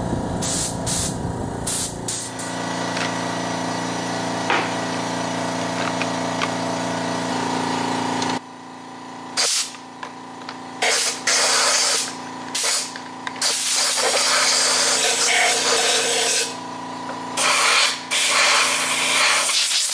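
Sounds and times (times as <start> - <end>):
steady mechanical hum: 0.0 - 19.9
air blow gun hissing blasts: 0.3 - 2.9.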